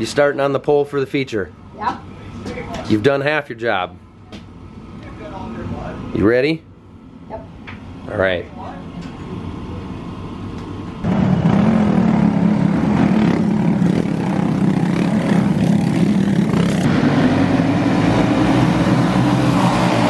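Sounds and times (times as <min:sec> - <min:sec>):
faint engine hum: 0:00.0 - 0:20.0
racing kart engines droning: 0:08.0 - 0:20.0.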